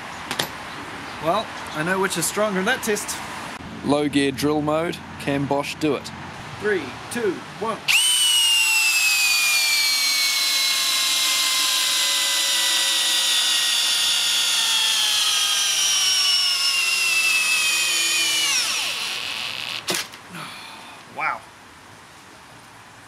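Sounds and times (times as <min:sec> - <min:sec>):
cordless drill driving screw: 0:07.9 - 0:20.2.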